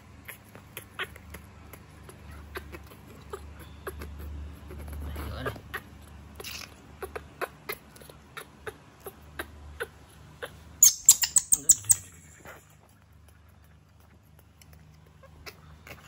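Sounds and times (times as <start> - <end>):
baby monkey squealing: 2.0 - 12.8.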